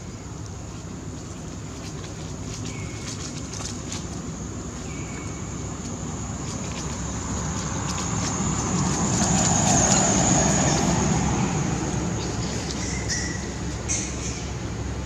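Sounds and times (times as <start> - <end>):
passing motor vehicle: 4.9 - 15.0.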